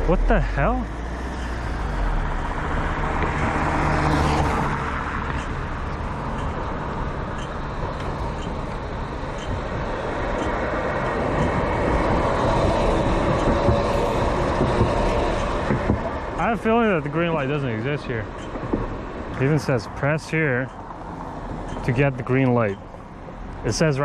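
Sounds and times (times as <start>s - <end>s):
passing cars rushing: 0.0s - 24.0s.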